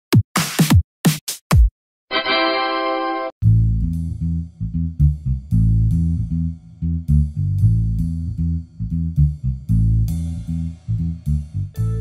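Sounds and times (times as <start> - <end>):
music with heavy bass line: 3.4 - 12.0.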